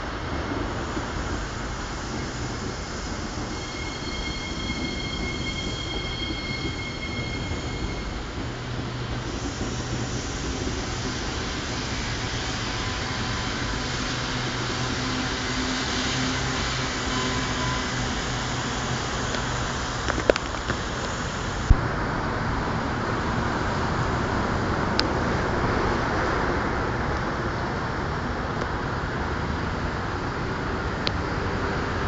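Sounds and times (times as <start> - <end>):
high-pitched train whine: 0.0 - 32.0
low train hum: 0.0 - 32.0
train wheels rumbling on rail: 0.0 - 32.0.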